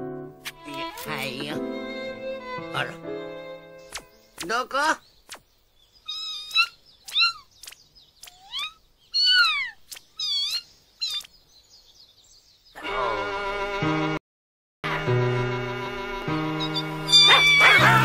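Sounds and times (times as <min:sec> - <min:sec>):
music: 0:00.0 - 0:04.2, 0:12.8 - 0:14.2, 0:14.8 - 0:18.0
kitten meowing: 0:06.1 - 0:07.5, 0:08.3 - 0:11.3, 0:16.6 - 0:18.0.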